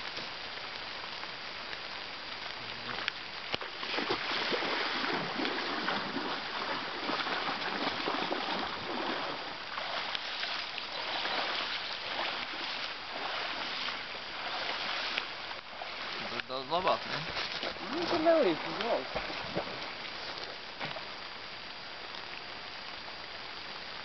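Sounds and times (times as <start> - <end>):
water splashing and pattering: 0.0 - 24.0.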